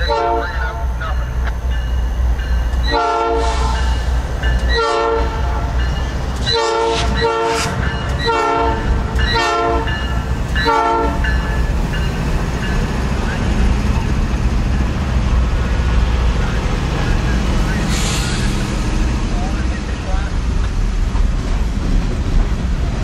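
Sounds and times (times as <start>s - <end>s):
locomotive horn blasts: 0.0s - 1.3s, 2.8s - 4.0s, 4.7s - 5.8s, 6.4s - 11.4s
train rumbling: 0.0s - 23.0s.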